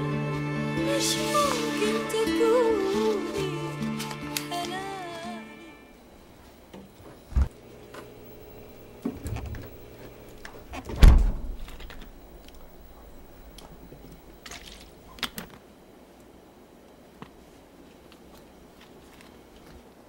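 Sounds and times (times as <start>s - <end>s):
heavy thud: 10.9s - 11.6s.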